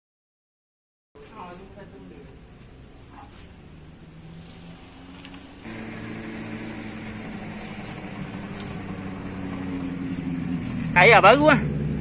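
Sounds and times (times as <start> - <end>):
motorcycle engine idling: 3.5 - 12.0.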